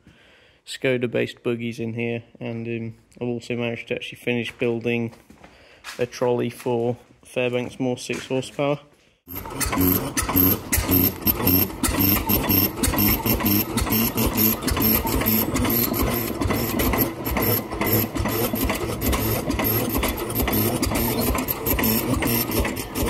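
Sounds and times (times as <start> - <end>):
stationary engine exhaust beat: 9.3 - 23.0.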